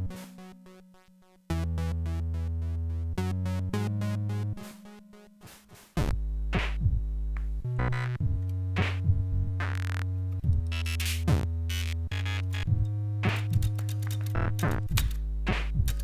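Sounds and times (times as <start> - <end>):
electronic chiptune music: 0.0 - 6.7, 7.6 - 16.0
synth bass: 0.0 - 16.0
drum machine beat: 5.4 - 16.0.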